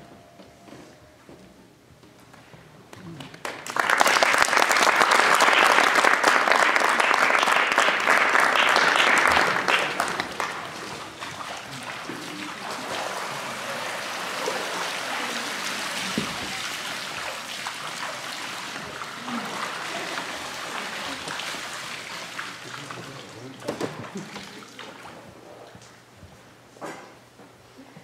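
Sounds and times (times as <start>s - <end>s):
audience applause: 3.1s - 25.0s.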